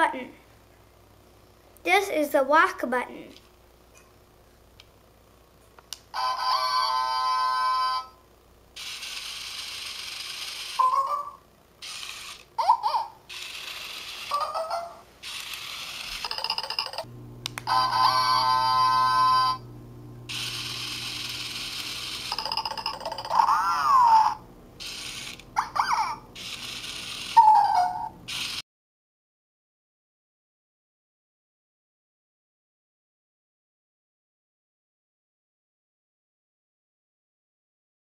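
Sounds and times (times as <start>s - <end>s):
whirring toy motor: 8.8s - 17.1s, 17.7s - 19.6s, 20.3s - 28.6s
squeaky toy chirps: 10.6s - 17.0s, 22.2s - 28.6s.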